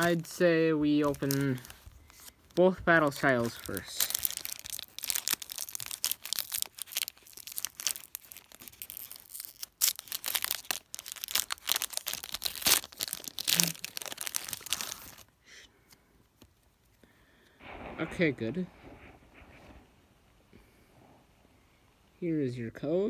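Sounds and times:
foil wrapper crinkling and tearing: 0.0s - 15.3s.

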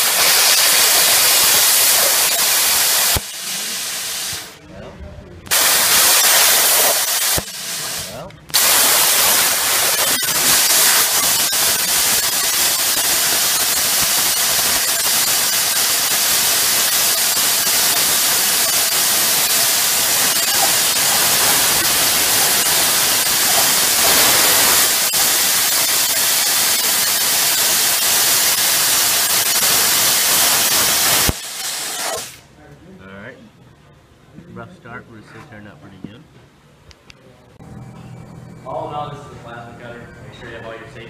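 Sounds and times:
plasma cutter hissing: 0.0s - 4.6s, 5.5s - 32.5s.

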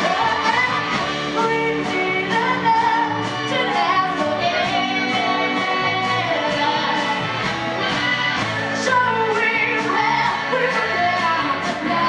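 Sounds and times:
bass guitar: 0.0s - 12.0s
drum kit: 0.0s - 12.0s
electric guitar: 0.0s - 12.0s
woman singing: 0.0s - 12.0s.

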